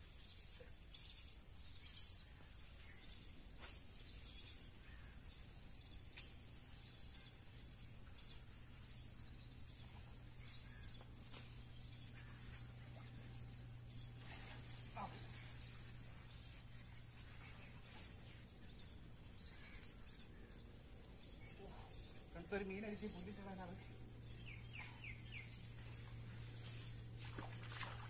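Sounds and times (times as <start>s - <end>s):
faint bird chirps: 0.0s - 28.0s
high-pitched insect chorus: 0.2s - 28.0s.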